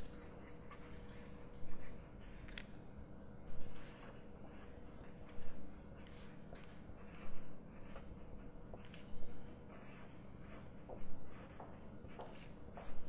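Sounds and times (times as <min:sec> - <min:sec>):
felt-tip pen scratching paper: 0:03.7 - 0:09.0, 0:09.7 - 0:13.0.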